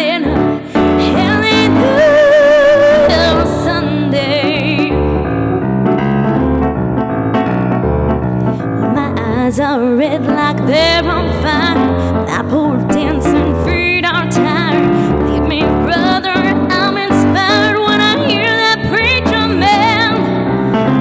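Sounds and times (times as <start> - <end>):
woman singing with vibrato: 0.0 - 5.1, 8.9 - 20.3
electric keyboard chords: 0.0 - 21.0.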